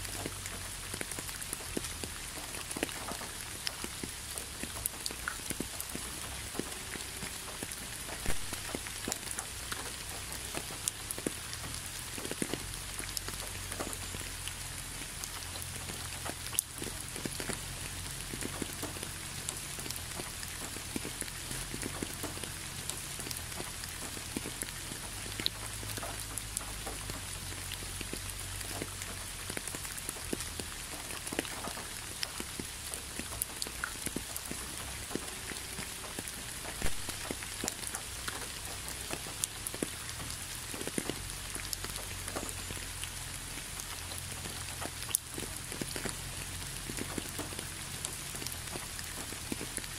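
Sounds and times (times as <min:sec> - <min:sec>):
rain pattering on concrete: 0:00.0 - 0:49.9.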